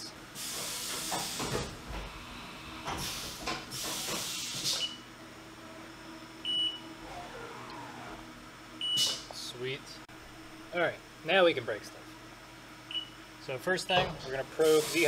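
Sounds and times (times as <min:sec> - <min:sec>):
compressed air hissing: 0:03.0 - 0:04.9, 0:14.6 - 0:15.0.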